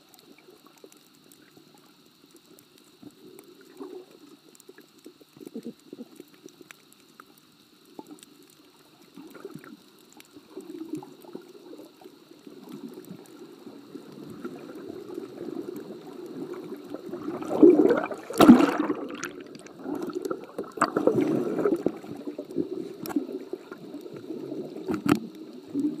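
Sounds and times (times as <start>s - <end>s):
faint high whine: 0.0s - 26.0s
underwater gurgling and sloshing: 0.0s - 26.0s
water rushing: 17.0s - 23.7s.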